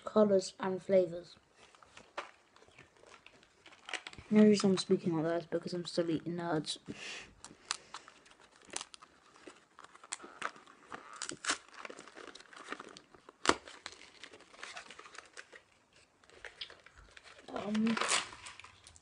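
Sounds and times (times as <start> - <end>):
candy packet crinkling and tearing: 1.6 - 5.0, 7.4 - 19.0.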